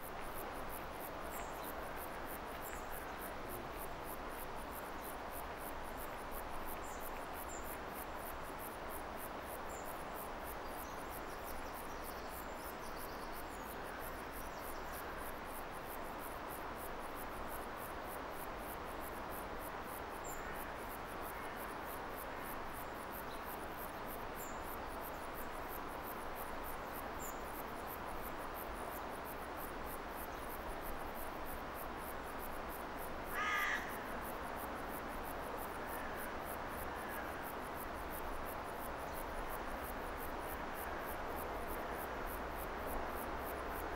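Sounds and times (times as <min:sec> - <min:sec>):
outdoor hiss: 0:00.0 - 0:43.9
insects trilling: 0:09.4 - 0:43.9
crow cawing: 0:33.3 - 0:34.0.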